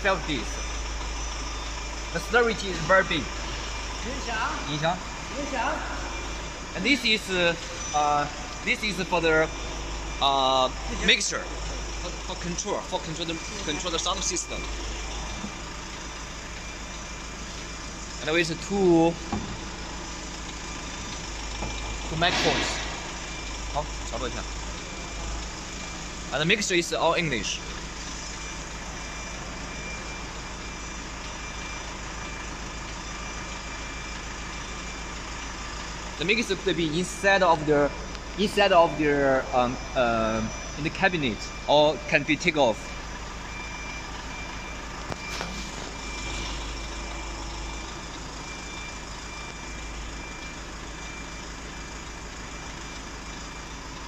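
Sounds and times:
faint high whine: 0.0s - 32.5s, 36.2s - 52.0s
high electronic beep: 0.0s - 51.6s
constant hum: 0.0s - 54.0s
engine idling: 0.0s - 54.0s.

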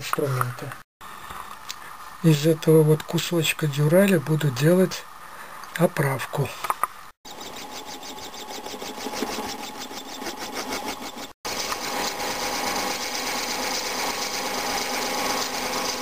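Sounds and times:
metal lathe running: 7.3s - 16.0s
turning tool cutting metal: 7.3s - 16.0s.

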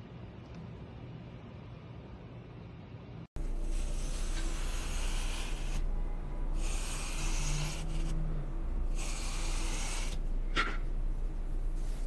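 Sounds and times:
craft knife scoring foam: 3.5s - 5.9s, 6.6s - 8.2s, 8.9s - 10.7s.

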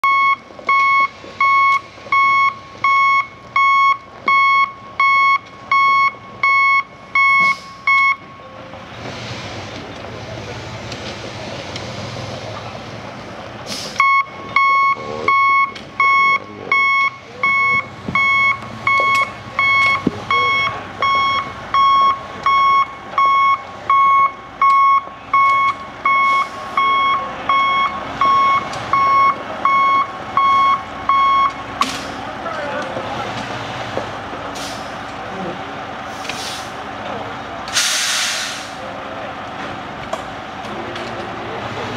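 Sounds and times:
backup alarm beeping: 0.0s - 8.7s, 14.0s - 31.6s
machinery noise: 0.4s - 41.9s.

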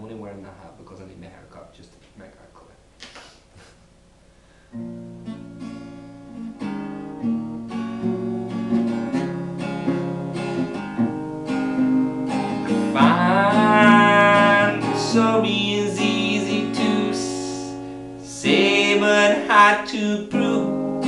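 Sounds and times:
acoustic guitar chords: 4.7s - 21.0s.

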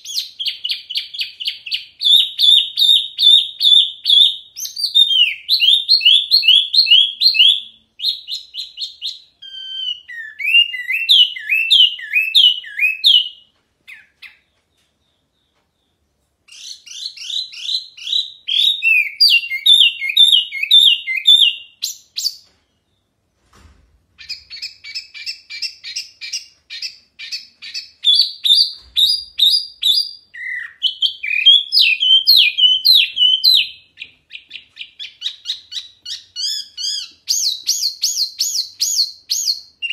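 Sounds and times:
songbird chirping: 0.0s - 23.5s, 24.1s - 39.9s.

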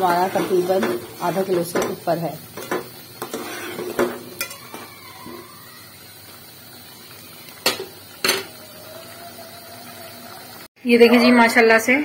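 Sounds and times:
sauce bubbling: 2.4s - 10.7s.

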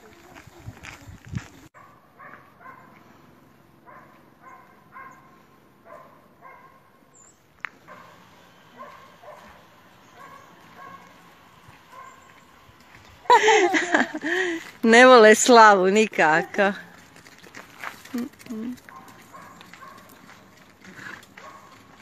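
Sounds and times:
dog barking faintly: 1.8s - 3.0s, 7.9s - 11.2s.

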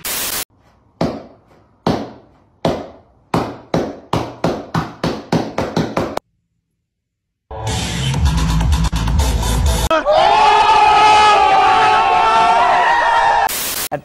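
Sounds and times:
static-like noise burst: 0.0s - 0.5s, 13.5s - 14.0s.

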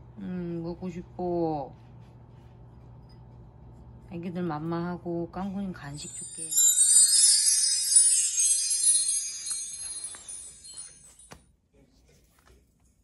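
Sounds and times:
twinkling chime: 5.9s - 11.3s.

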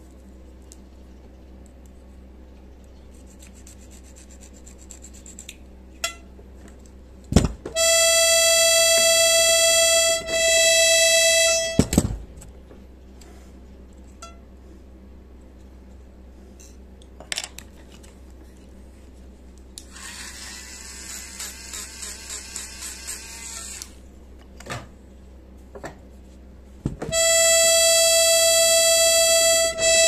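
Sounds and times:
file scraping reed: 3.0s - 5.5s
accordion reed note: 7.8s - 12.0s, 27.1s - 30.0s
handling knocks: 26.8s - 27.2s.

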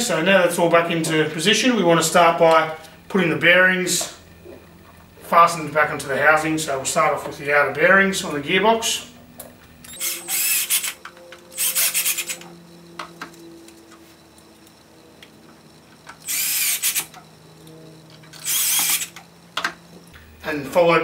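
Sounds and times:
cordless drill driving screws: 9.9s - 11.0s, 11.6s - 12.4s, 16.2s - 17.1s, 18.4s - 19.1s.

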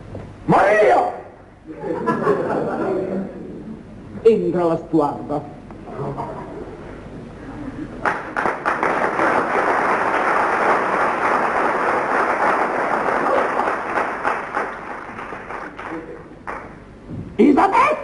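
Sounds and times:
audience applauding: 8.0s - 16.8s.

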